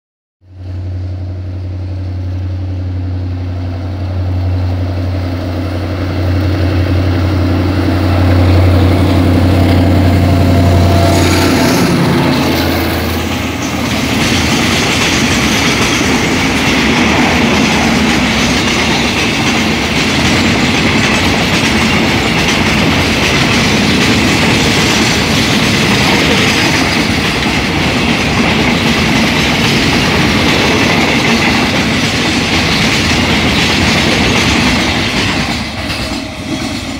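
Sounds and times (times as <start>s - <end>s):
locomotive engine drone: 0.5s - 36.9s
train wheels clickety-clack: 8.4s - 36.9s.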